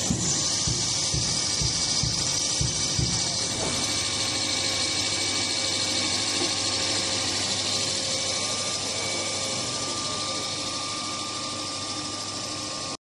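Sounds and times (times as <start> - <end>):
low thumps: 0.0 - 3.8
extruder machine hissing and humming: 0.0 - 13.0.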